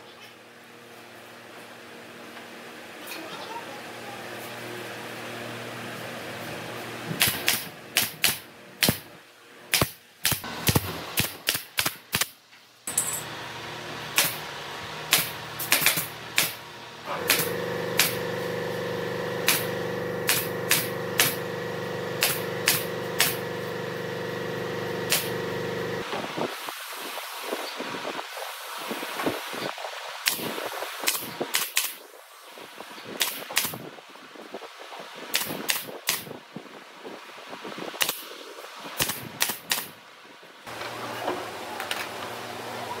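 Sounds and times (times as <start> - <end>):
nail gun firing: 7.2 - 9.1, 9.7 - 12.4, 14.2 - 14.4, 15.1 - 16.6, 17.2 - 18.4, 19.4 - 21.6, 22.2 - 23.5, 25.1 - 25.5, 30.3 - 32.0, 33.2 - 33.8, 35.3 - 36.3, 38.0 - 38.3, 39.0 - 40.0
machine hum: 12.9 - 26.2.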